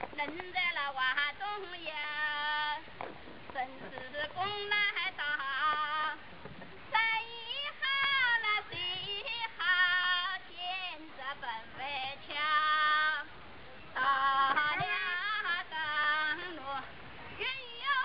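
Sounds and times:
woman singing unaccompanied: 0.0 - 18.0.

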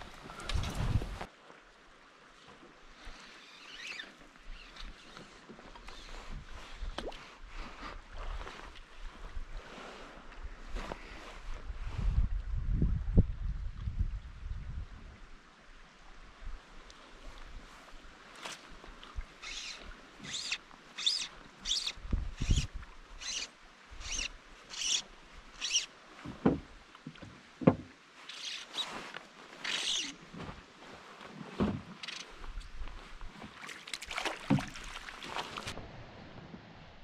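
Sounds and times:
wind buffeting microphone: 0.0 - 1.3, 11.4 - 15.2, 22.0 - 22.8
flowing river water: 0.0 - 11.6, 15.1 - 36.1
oars splashing in water: 33.3 - 35.8.

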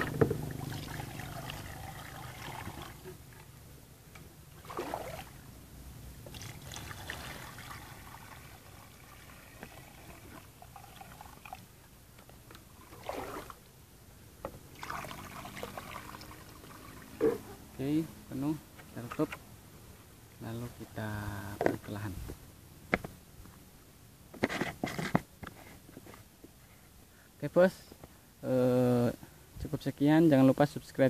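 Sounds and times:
water pouring into plastic tank: 0.0 - 3.4, 4.6 - 5.4, 6.2 - 11.7, 12.7 - 13.6, 14.7 - 17.4.

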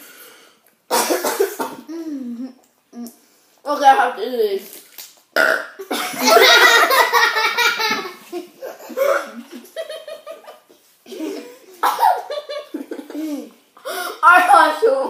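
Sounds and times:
girls laughing: 5.9 - 13.6.

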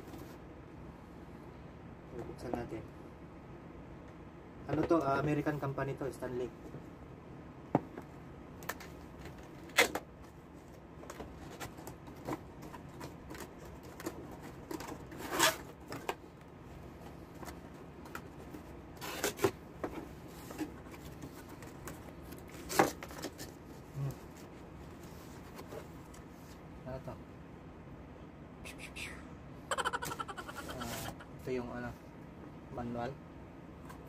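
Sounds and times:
cardboard rustling and scraping: 11.0 - 16.2, 17.0 - 26.6, 30.6 - 31.2.

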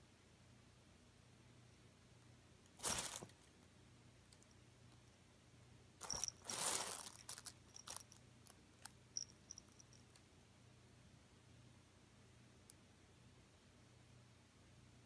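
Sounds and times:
cat scuffling in fabric: 2.8 - 3.3, 6.0 - 8.0
fabric rustle: 2.8 - 3.4, 6.0 - 8.1
collar tag clinking: 6.0 - 8.2, 8.8 - 10.2.

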